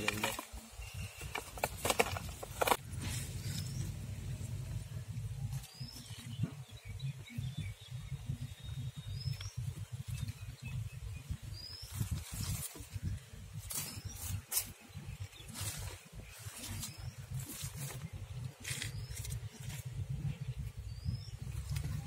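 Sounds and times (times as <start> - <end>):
wind on microphone: 0.6 - 22.0
rising bird chirps: 2.9 - 22.0
dried leaf wrapping crackling: 11.7 - 20.2.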